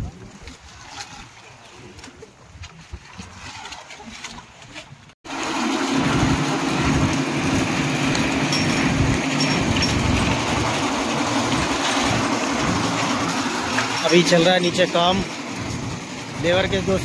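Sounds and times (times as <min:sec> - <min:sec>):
machine engine humming: 0:05.3 - 0:17.0.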